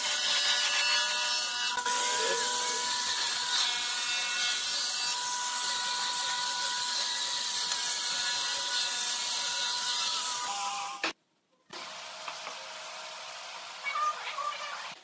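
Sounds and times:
angle grinder motor whine: 1.7s - 3.4s.

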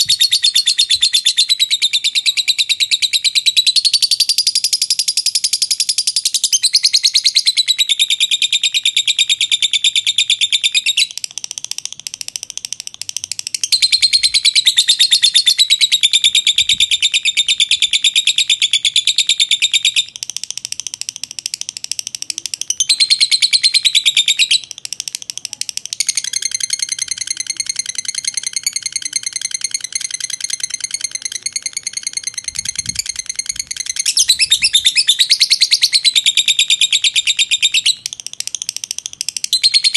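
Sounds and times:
lovebird chattering trill: 0.0s - 39.9s.

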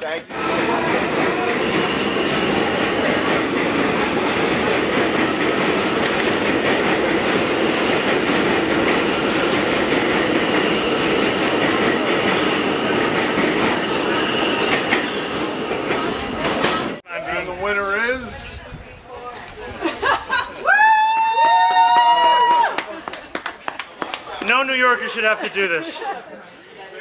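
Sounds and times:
train wheels on rails: 0.0s - 17.0s.

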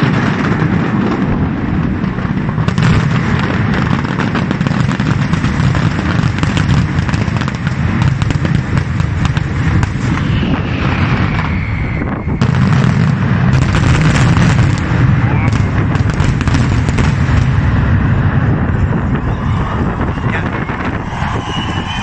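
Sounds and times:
fireworks booming and crackling: 0.0s - 22.0s
firework whistle sliding down: 10.1s - 12.6s, 19.2s - 22.0s.

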